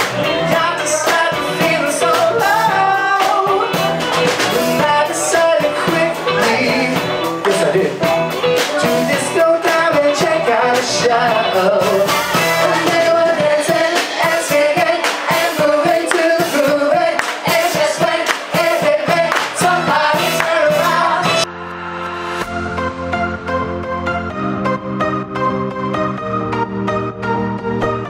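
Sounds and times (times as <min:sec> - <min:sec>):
person singing: 0:00.0 - 0:04.0, 0:04.6 - 0:21.5
live rock band playing: 0:00.0 - 0:28.0.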